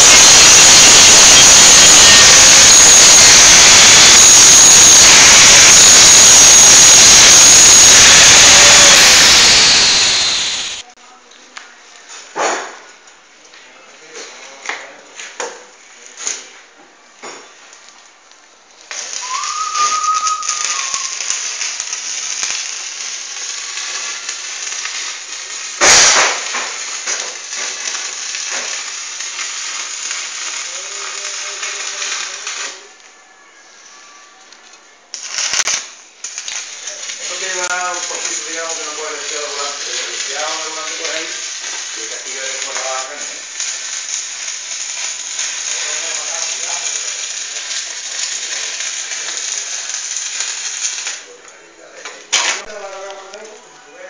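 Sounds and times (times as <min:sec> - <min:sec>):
angle grinder grinding steel: 0:00.0 - 0:10.8
arc welding crackle: 0:00.0 - 0:11.0, 0:14.6 - 0:33.2, 0:34.4 - 0:53.7.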